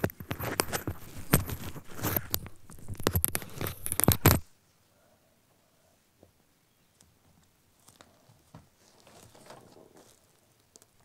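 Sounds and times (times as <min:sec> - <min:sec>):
objects crackling and scraping: 0:00.0 - 0:04.5, 0:07.7 - 0:11.0.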